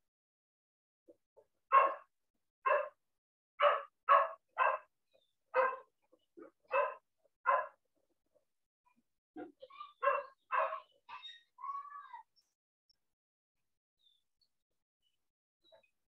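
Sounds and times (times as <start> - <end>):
dog barking: 1.7 - 2.1, 2.7 - 3.0, 3.6 - 4.9, 5.5 - 7.8, 10.0 - 11.3.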